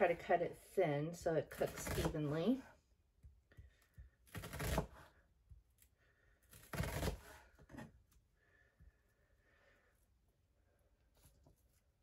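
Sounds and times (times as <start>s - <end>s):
knife slicing onion on board: 1.4s - 2.6s, 3.6s - 5.6s, 6.5s - 8.0s.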